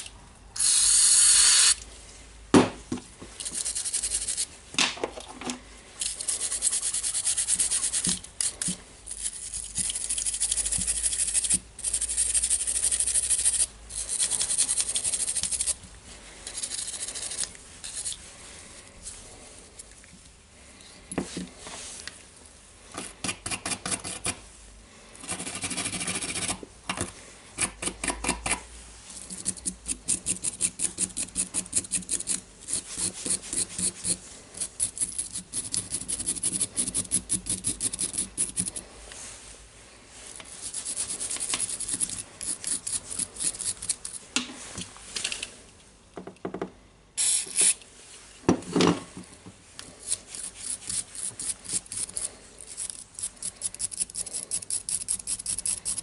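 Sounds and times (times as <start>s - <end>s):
wire brush scrubbing metal: 6.0s - 15.8s, 50.0s - 56.0s.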